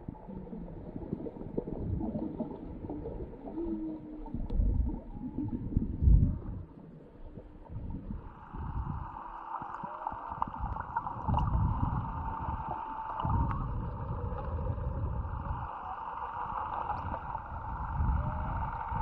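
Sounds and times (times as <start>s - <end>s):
low rumble: 0.0s - 19.0s
muffled underwater noise: 0.0s - 19.0s.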